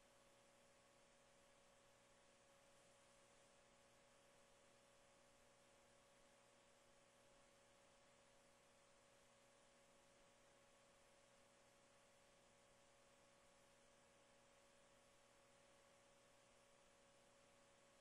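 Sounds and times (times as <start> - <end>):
low electrical hum: 0.0 - 18.0.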